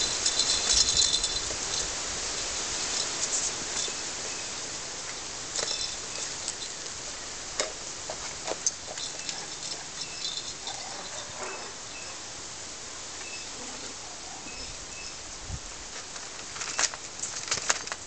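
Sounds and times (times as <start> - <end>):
steady outdoor hiss: 0.0 - 18.0
puppies' claws clicking on tiles: 8.1 - 11.0.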